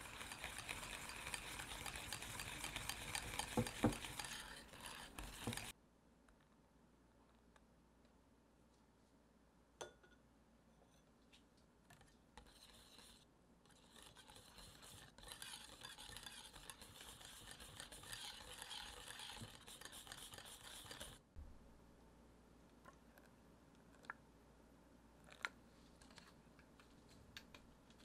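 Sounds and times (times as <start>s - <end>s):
whisk swishing in glass bowl: 0.0s - 5.7s, 12.4s - 21.2s.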